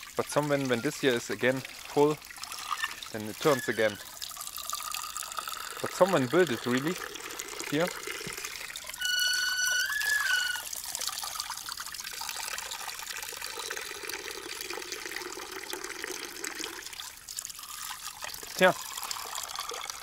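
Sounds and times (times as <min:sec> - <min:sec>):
stream trickling: 0:00.0 - 0:20.0
high whistled note: 0:09.0 - 0:10.7.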